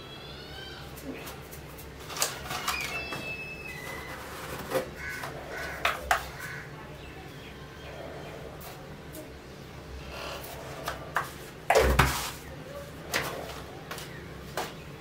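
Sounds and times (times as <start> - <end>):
birds calling: 4.8 - 11.1.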